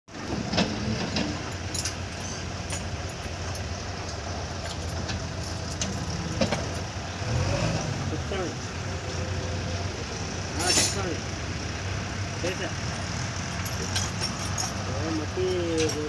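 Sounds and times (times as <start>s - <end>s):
diesel engine running: 0.1s - 16.0s
sharp metallic clinks: 1.4s - 7.0s, 10.6s - 11.2s, 12.4s - 16.0s.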